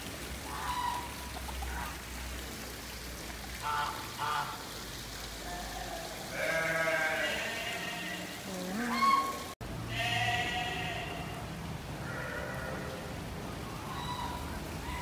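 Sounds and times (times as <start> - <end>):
animal bleating: 5.4 - 11.4, 12.0 - 12.9.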